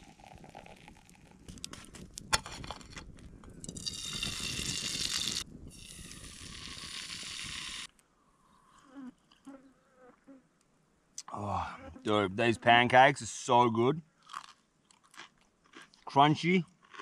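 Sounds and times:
steady hiss: 0:04.0 - 0:07.9.

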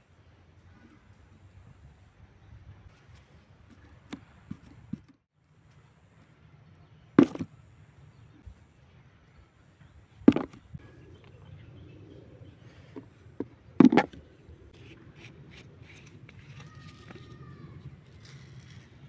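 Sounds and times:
low hum: 0:05.8 - 0:19.0
earth clod knocking on cardboard: 0:07.2 - 0:07.5, 0:10.3 - 0:10.6.

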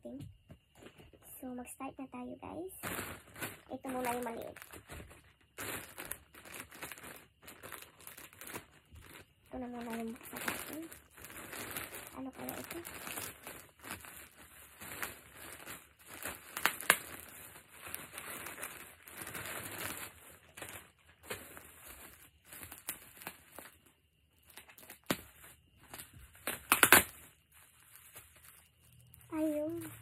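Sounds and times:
plastic packaging crinkling: 0:02.8 - 0:30.0.

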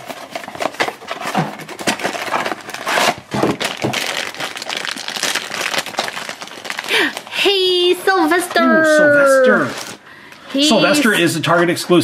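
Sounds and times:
foil bag rustling and crackling: 0:00.0 - 0:07.9.

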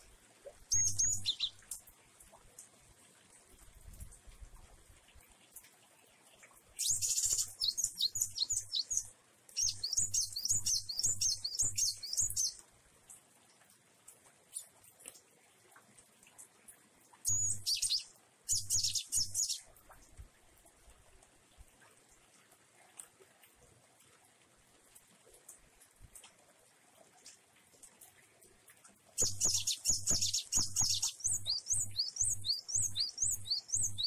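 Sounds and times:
bird chattering song: 0:00.7 - 0:01.7, 0:06.8 - 0:12.6, 0:17.3 - 0:19.7, 0:29.2 - 0:34.0.

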